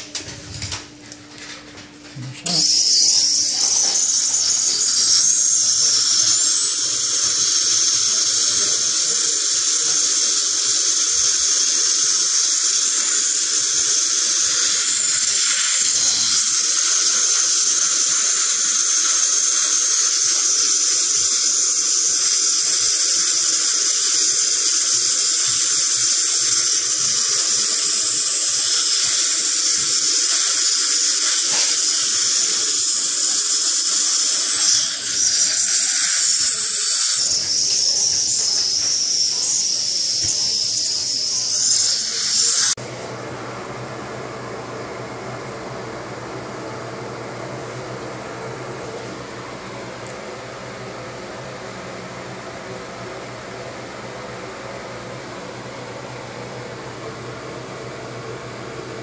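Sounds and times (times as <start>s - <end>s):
dental drill whining: 2.2s - 42.8s
suction tube hiss: 2.2s - 42.8s.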